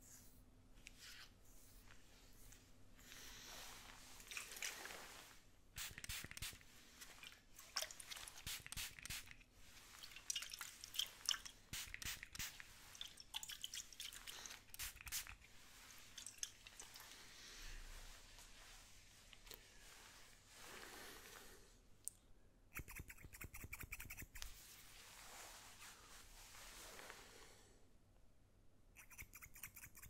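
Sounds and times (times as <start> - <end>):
spray bottle hiss: 5.8 - 6.7, 8.2 - 9.4, 10.9 - 13.0, 14.2 - 15.4.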